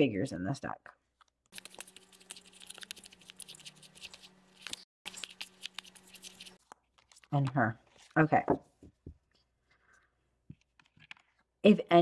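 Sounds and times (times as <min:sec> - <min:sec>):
cards clicking and flicking: 0:01.5 - 0:07.3.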